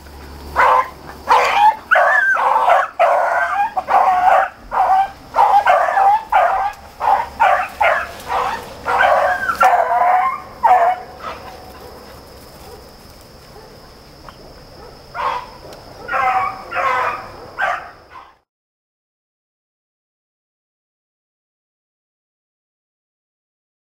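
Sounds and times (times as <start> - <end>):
beagles baying: 0.2 - 18.4.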